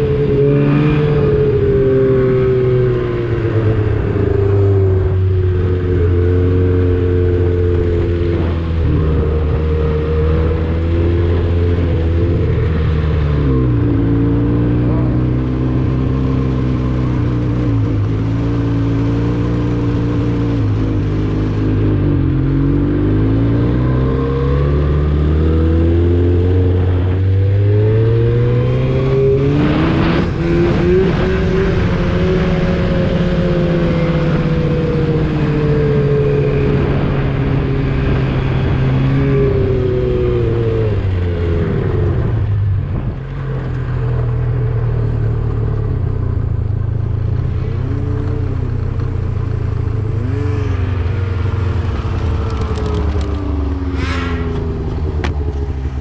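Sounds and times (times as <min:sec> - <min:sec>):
snowmobile engine revving: 0:50.0 - 0:55.3.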